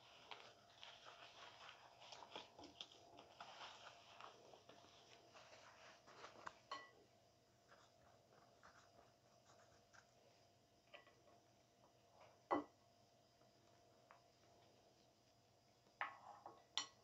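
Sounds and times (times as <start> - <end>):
faint kitchen clicks and taps: 10.8 - 17.0.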